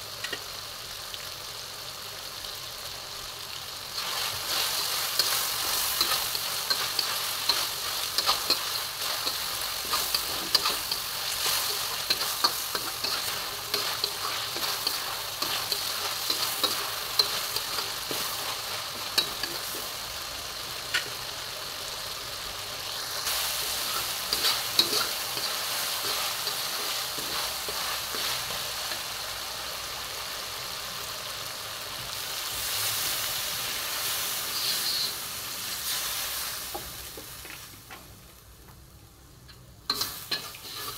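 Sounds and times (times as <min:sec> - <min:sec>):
meat sizzling in hot oil: 0:00.0 - 0:37.9, 0:39.9 - 0:40.9
metal spatula scraping wok: 0:04.0 - 0:19.9, 0:23.3 - 0:29.0, 0:34.1 - 0:35.2, 0:39.9 - 0:40.9.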